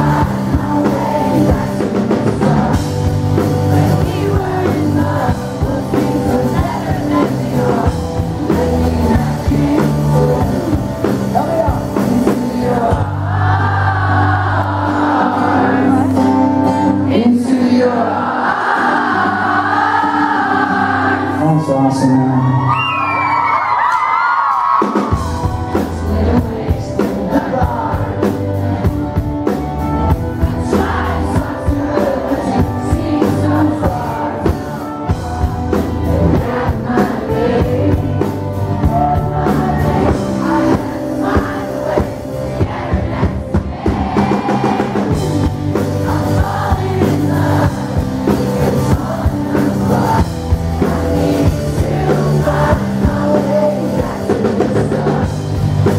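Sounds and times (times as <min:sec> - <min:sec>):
person singing: 0:00.0 - 0:16.4, 0:30.4 - 0:42.3, 0:44.4 - 0:55.9
drum kit: 0:00.0 - 0:17.6, 0:23.0 - 0:55.9
live rock band: 0:00.0 - 0:55.9.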